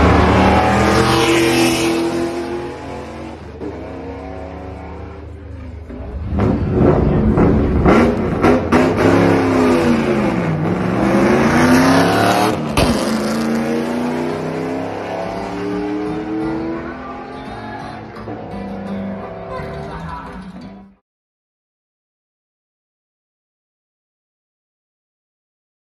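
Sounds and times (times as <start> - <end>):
car engine at full throttle: 0.0 - 19.5.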